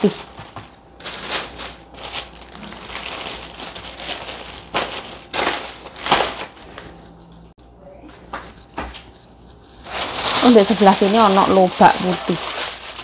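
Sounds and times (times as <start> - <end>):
plastic bags rustling: 0.0 - 6.9, 9.8 - 13.0.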